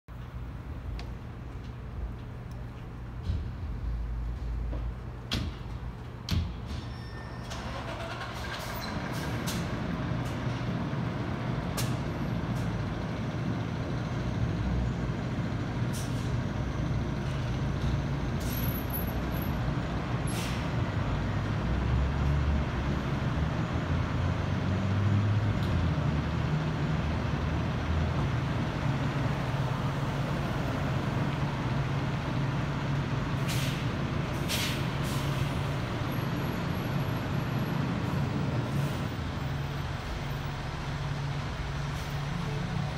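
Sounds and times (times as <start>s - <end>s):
diesel engines idling: 7.5s - 42.9s
air brake hisses: 20.3s - 20.8s, 33.4s - 35.7s.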